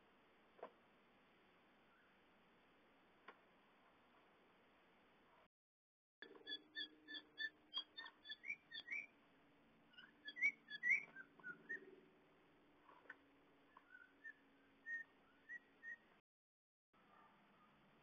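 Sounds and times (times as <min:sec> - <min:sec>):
high-pitched chirps: 0:06.2 - 0:09.1
rising whistle-like calls: 0:06.4 - 0:09.1, 0:10.0 - 0:11.9, 0:13.8 - 0:16.1.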